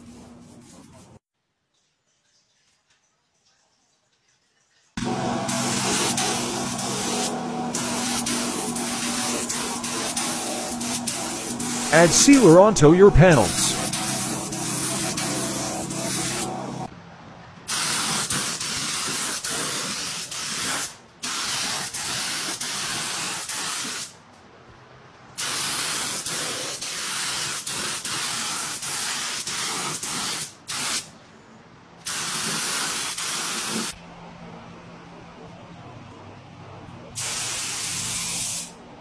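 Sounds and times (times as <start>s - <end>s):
spray gun hissing: 5.5s - 16.9s.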